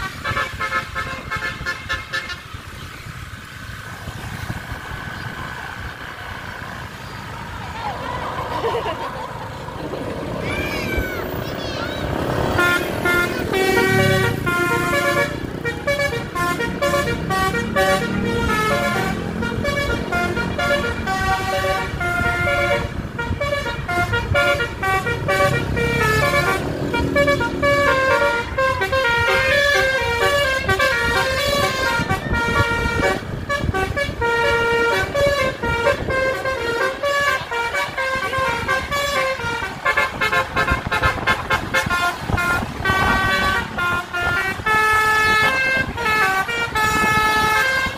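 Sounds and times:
multi-tone electric horn tune: 0.0 - 2.5, 12.5 - 47.9
road traffic: 0.0 - 47.9.

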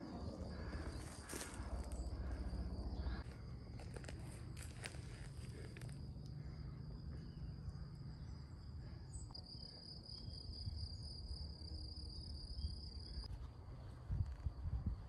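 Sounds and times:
faint low rumble: 0.0 - 9.4
cricket trilling: 0.0 - 13.3.

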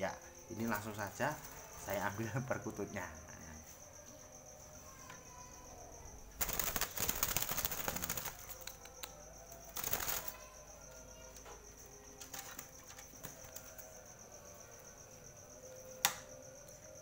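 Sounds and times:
bird wings beating: 6.4 - 8.8, 9.7 - 10.4.

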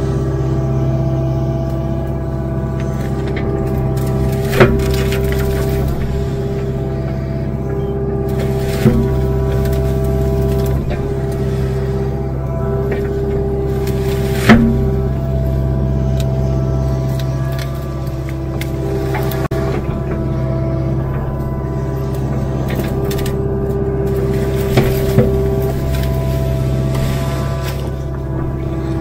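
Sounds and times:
excavator diesel engine running: 0.0 - 29.0
hydraulic whine: 0.0 - 29.0
sharp cracks of tree uprooting: 2.8 - 12.2, 21.3 - 29.0.

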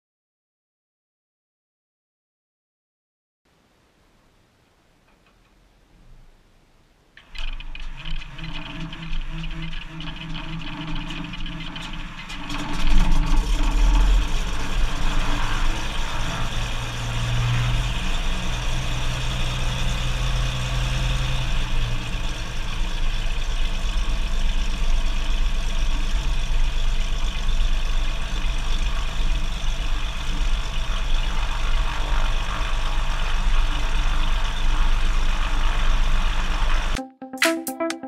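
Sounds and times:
propeller plane engine running: 7.3 - 35.5.

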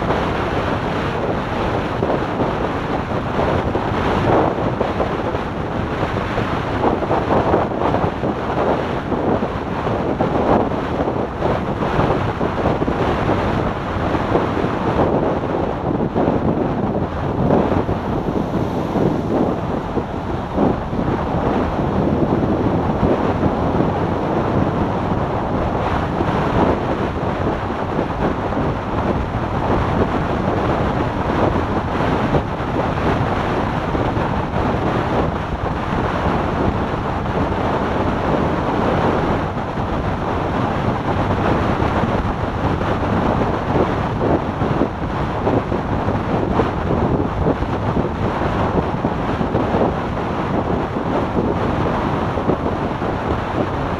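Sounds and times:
road noise: 0.0 - 53.9
wind buffeting microphone: 0.0 - 53.9.

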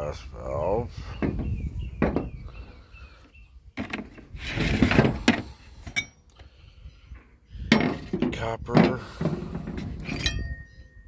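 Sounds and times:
scrap metal scraping: 3.8 - 6.1
sharp metallic clinks: 10.0 - 11.0.

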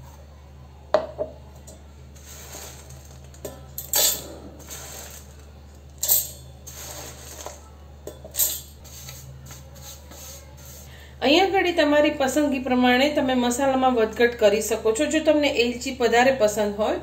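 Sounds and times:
steady low hum: 0.0 - 17.0
spices rattling on metal: 2.2 - 10.2.

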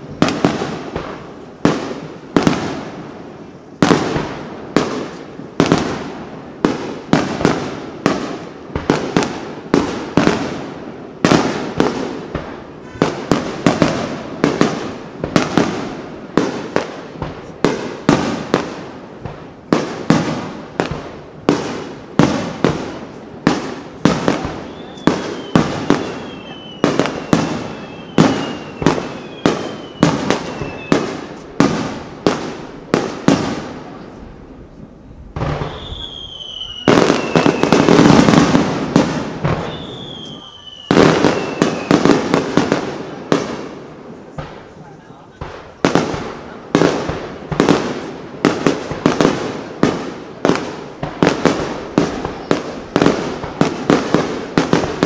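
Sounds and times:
firework whistles falling in pitch: 24.5 - 31.4, 35.4 - 38.4, 39.4 - 42.2.

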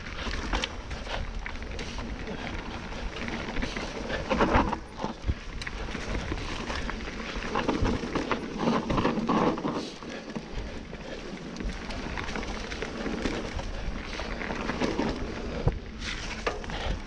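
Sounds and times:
wind rumble on microphone: 0.0 - 9.8
bike rattling and knocking: 0.0 - 17.0
bike tyres on dirt and leaves: 0.0 - 17.0.

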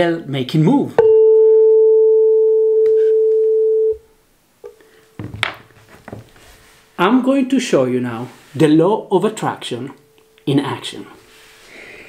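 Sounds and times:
tuning fork pure tone: 1.0 - 4.0
soft rustles: 4.8 - 7.1, 11.1 - 11.9.

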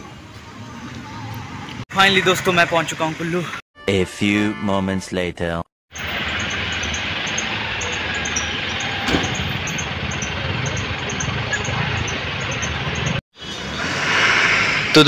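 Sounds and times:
distant traffic hum: 0.0 - 3.6, 5.9 - 15.0.

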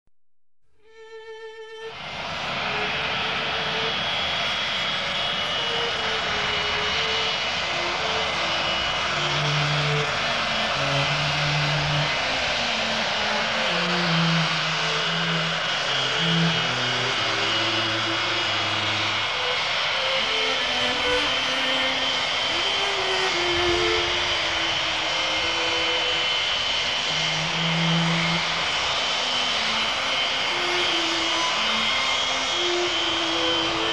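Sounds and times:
jet engines running: 1.5 - 33.9.

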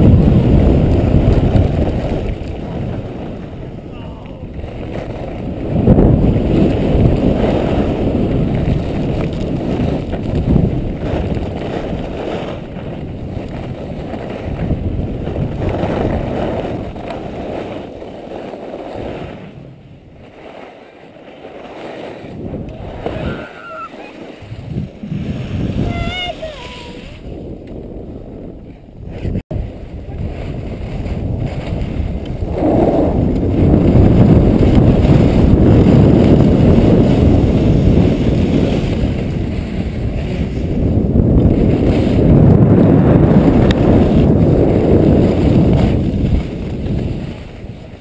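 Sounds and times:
skis scraping on snow: 0.0 - 48.0
wind rushing over microphone: 0.0 - 48.0
brief high voice: 23.2 - 24.1, 25.8 - 27.1.

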